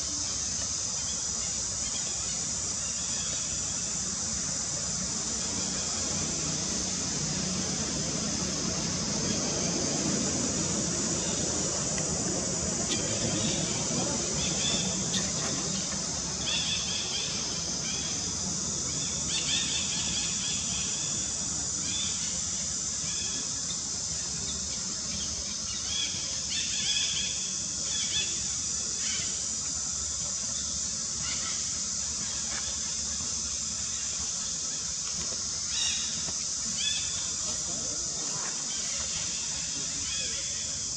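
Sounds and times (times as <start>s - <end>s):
insect chorus drone: 0.0s - 40.9s.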